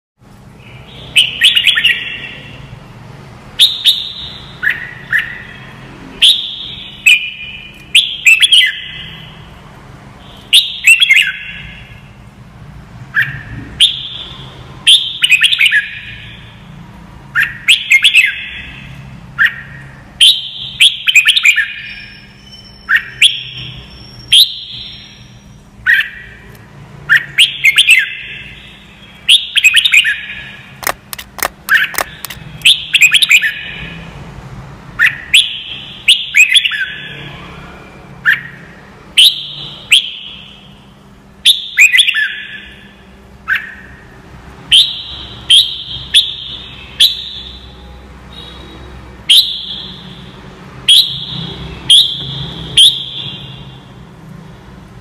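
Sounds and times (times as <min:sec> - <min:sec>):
bird singing whistled phrases: 0:00.6 - 0:02.6, 0:03.6 - 0:05.6, 0:06.2 - 0:09.4, 0:10.2 - 0:11.9, 0:17.4 - 0:18.7, 0:19.4 - 0:26.4, 0:27.1 - 0:30.6, 0:41.4 - 0:42.9.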